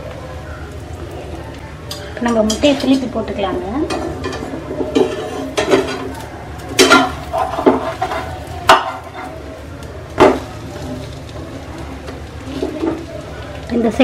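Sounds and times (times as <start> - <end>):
metal spatula knocking and scraping pan: 3.8 - 6.1, 6.8 - 9.3.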